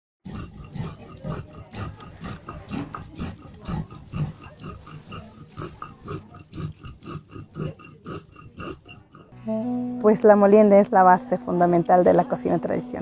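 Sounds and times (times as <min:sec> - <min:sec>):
stone scraping on grinding stone: 0:00.3 - 0:09.4.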